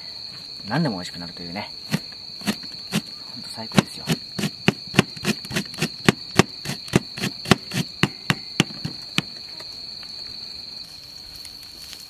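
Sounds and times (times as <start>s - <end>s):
insect trill: 0.0s - 12.0s.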